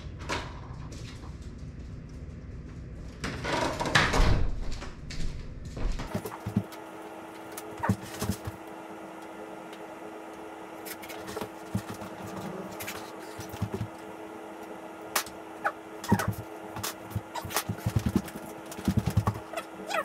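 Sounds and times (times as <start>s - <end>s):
steady hum: 4.7s - 20.0s.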